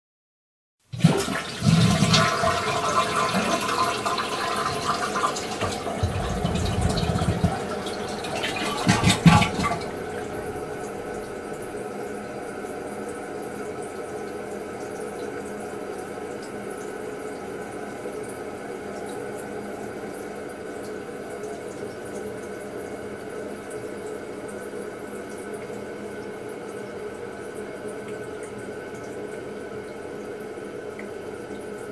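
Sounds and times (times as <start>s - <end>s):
toilet tank refilling hiss: 0.9s - 11.9s
toilet flushing: 0.9s - 31.9s.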